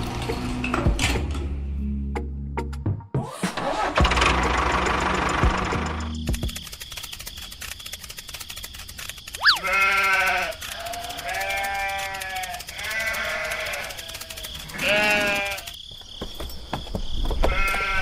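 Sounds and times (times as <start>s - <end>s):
quick rising chirp: 8.6s - 9.7s
livestock bleating: 9.4s - 15.7s, 17.5s - 18.0s.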